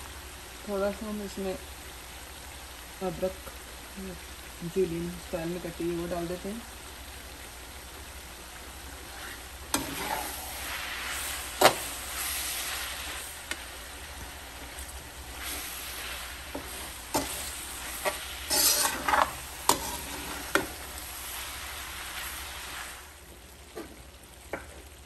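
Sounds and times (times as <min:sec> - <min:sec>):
meat sizzling in oil: 0:00.0 - 0:25.0
metal spoon clacking and scraping pan: 0:09.8 - 0:10.5, 0:16.6 - 0:20.7.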